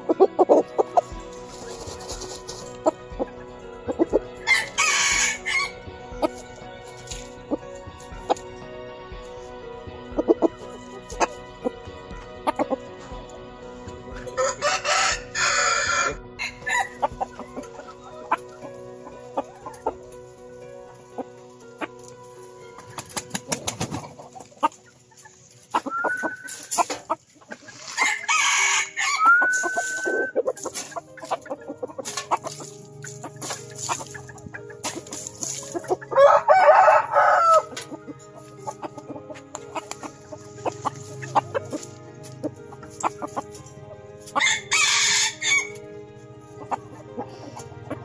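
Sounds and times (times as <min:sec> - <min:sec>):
rooster crowing: 0:04.4 - 0:05.8, 0:14.4 - 0:17.0, 0:28.0 - 0:30.3, 0:36.2 - 0:37.8, 0:44.4 - 0:45.8
rooster clucking: 0:25.7 - 0:43.6, 0:44.3 - 0:45.8.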